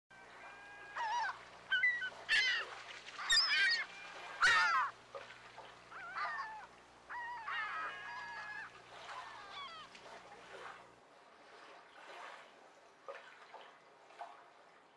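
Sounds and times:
faint steady low hum: 0.1 - 14.9
birds calling: 0.2 - 5.0, 5.8 - 9.9.

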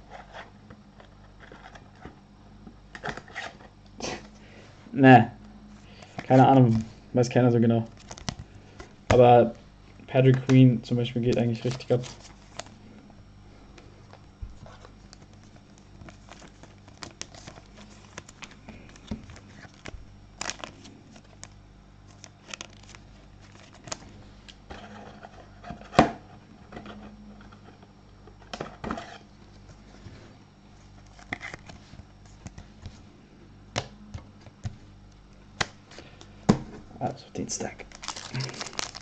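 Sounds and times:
cards scraping and clicking: 2.9 - 4.3, 11.2 - 12.8, 31.0 - 33.0
wrappers tearing and crinkling: 7.8 - 8.4, 11.3 - 12.7, 14.6 - 24.1, 37.6 - 39.0.

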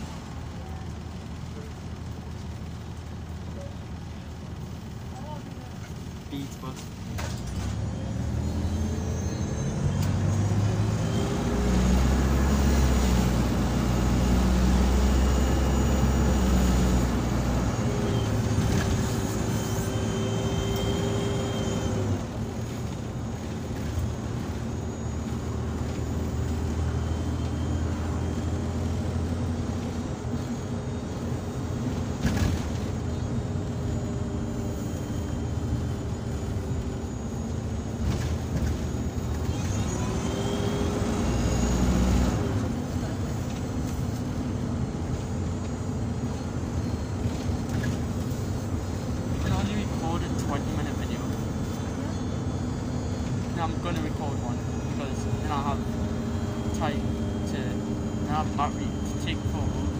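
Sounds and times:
bus engine whining: 0.0 - 59.9.

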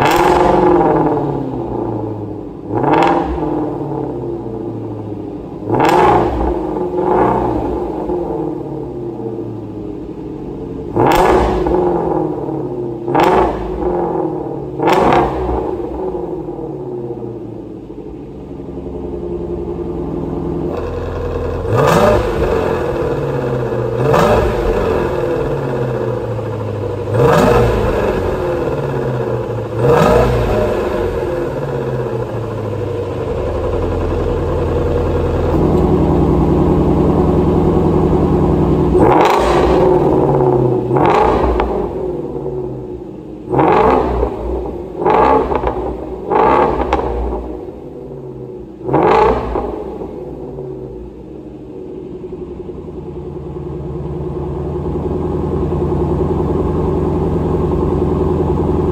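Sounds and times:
car engine idling and revving: 0.0 - 58.9.

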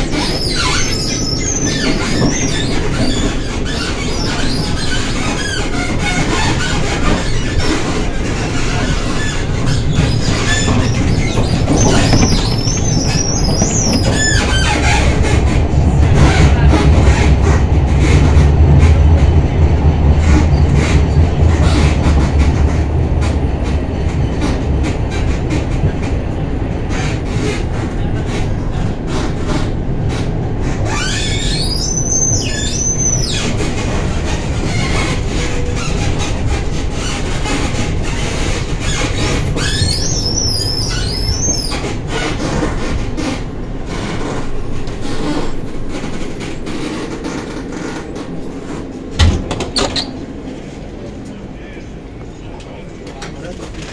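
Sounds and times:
wheels squealing on rails: 0.0 - 18.4, 26.8 - 49.0, 49.6 - 52.0
tram rumbling on rails: 0.0 - 53.9.

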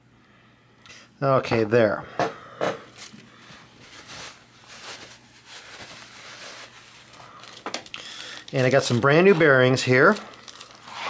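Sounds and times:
handling noises: 1.5 - 11.0
paper towel rustling: 2.9 - 11.0.

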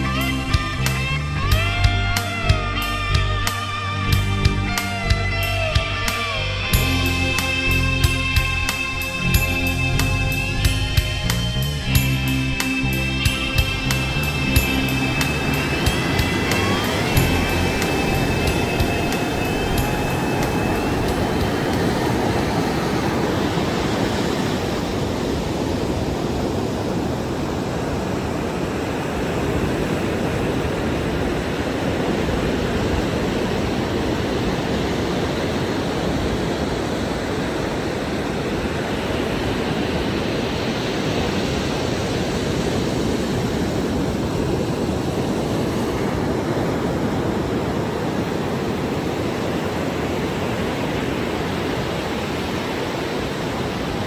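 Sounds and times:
ocean surf breaking: 8.7 - 54.0.

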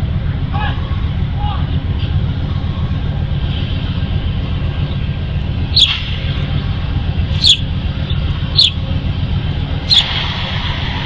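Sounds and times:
train low rumble: 0.0 - 11.0
bird sharp chirps: 5.7 - 6.0, 7.4 - 8.8, 9.9 - 10.1.

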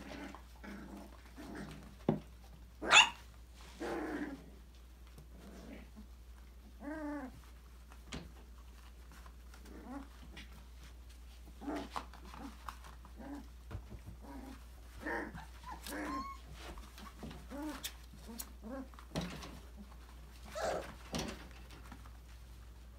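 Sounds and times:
puppies whining and yipping: 2.8 - 3.2, 15.3 - 18.9, 20.4 - 21.1.

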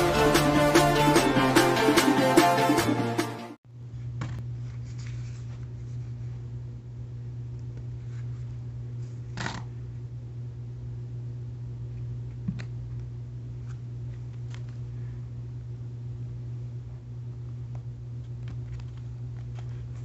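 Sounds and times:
low hum: 0.0 - 3.2
paper rustling: 4.6 - 6.3.

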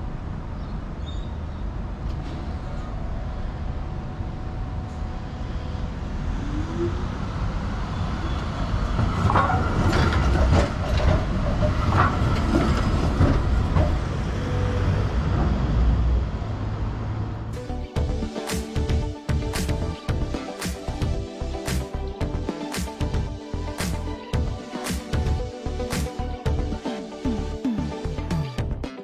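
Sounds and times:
tram wheels rumbling on rails: 0.0 - 17.6
wheel squeals: 7.9 - 14.9
rattles and clicks: 9.2 - 14.1.

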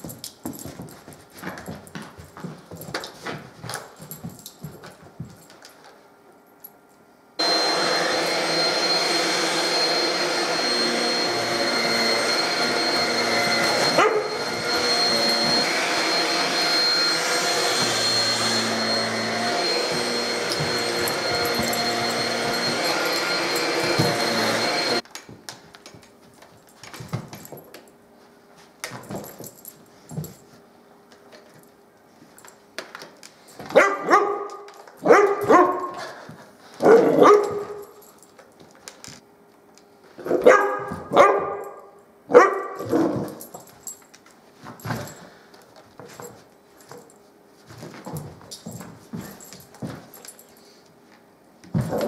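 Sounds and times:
stick vacuum cleaner running: 7.4 - 25.0
dog barking: 14.0 - 14.3, 33.7 - 36.0, 36.8 - 37.8, 40.2 - 43.1.

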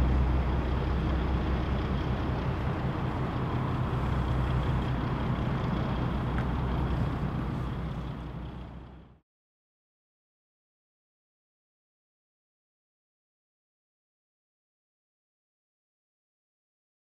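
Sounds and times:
boat diesel engine drone: 0.0 - 9.2.

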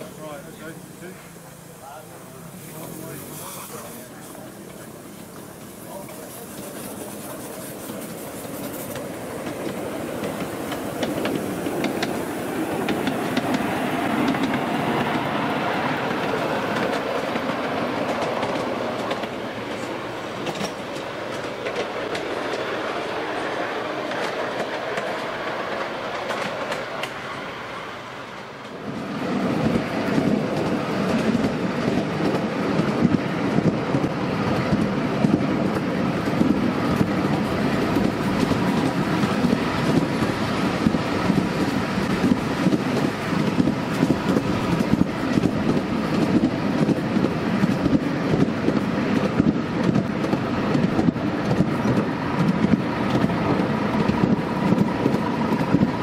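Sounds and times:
train wheels rumbling on rail: 0.0 - 56.0
rapid clicking from rail joints: 2.7 - 27.2, 28.3 - 56.0.

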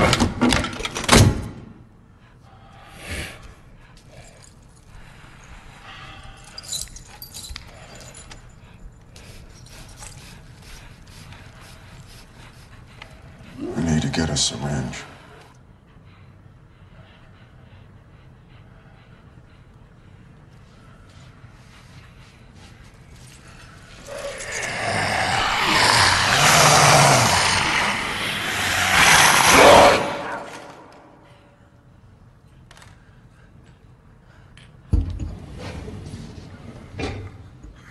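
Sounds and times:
creature shrieking harshly: 24.1 - 30.8.

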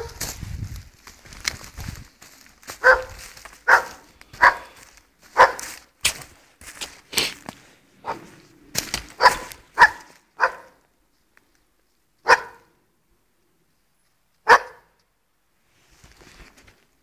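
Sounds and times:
dog barking: 0.0 - 0.2, 2.8 - 5.7, 8.0 - 8.4, 9.2 - 10.8, 12.2 - 12.8, 14.4 - 15.0.

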